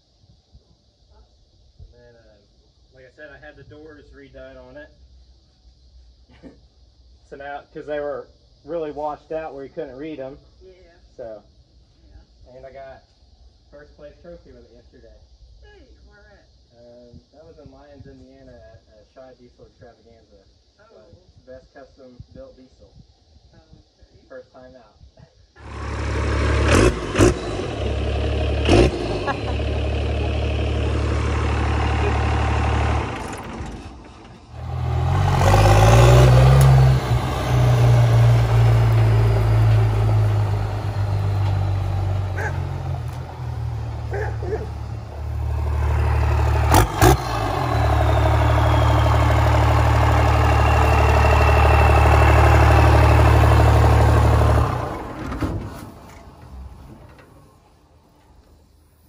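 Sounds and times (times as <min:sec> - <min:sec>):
diesel truck engine revving: 0:25.6 - 0:57.7.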